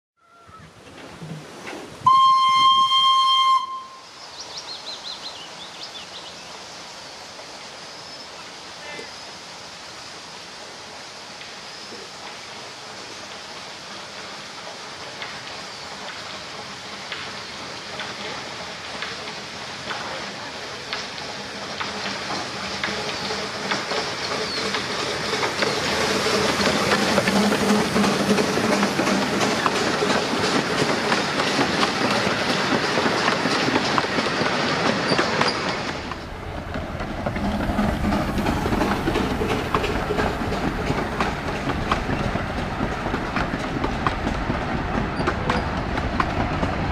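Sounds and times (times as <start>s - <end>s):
steam locomotive passing: 0.2s - 46.9s
wheels clattering over rail joints: 14.6s - 46.9s.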